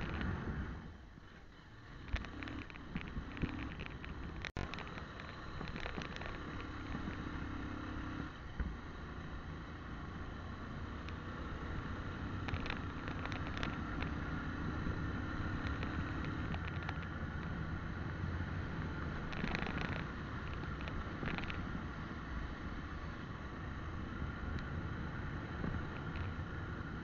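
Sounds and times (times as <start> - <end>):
motorcycle engine hum: 0.0 - 27.0
wind and road noise: 0.0 - 27.0.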